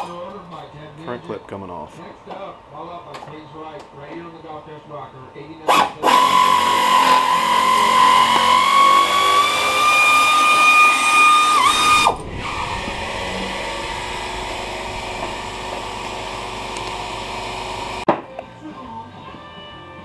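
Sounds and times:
electric drill whining: 0:05.9 - 0:18.1.

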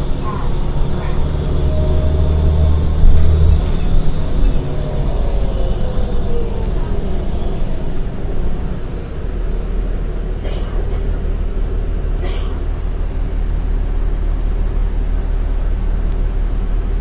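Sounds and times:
whine falling in pitch: 0:00.0 - 0:08.5
bus engine rumble: 0:00.0 - 0:17.0.

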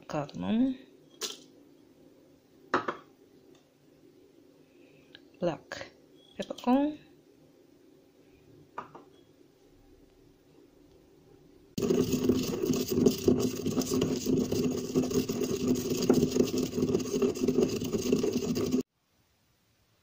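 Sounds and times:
pestle grinding in marble mortar: 0:11.8 - 0:18.9.

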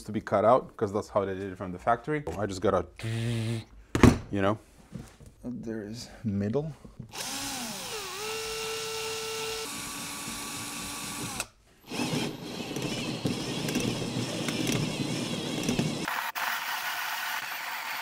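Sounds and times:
drill motor whine: 0:07.2 - 0:18.0
hole saw grinding through metal: 0:11.2 - 0:16.1.

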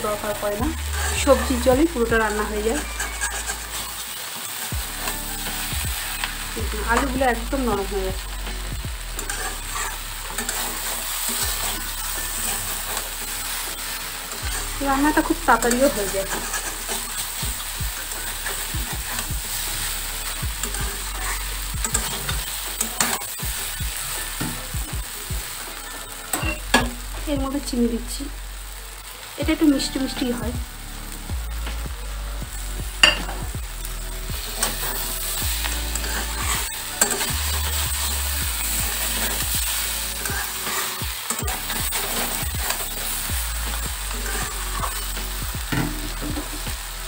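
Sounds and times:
food sizzling in hot pan: 0:00.0 - 0:47.0
spatula scraping metal pan: 0:00.2 - 0:07.8, 0:09.2 - 0:24.7, 0:33.0 - 0:33.4, 0:34.1 - 0:46.7.

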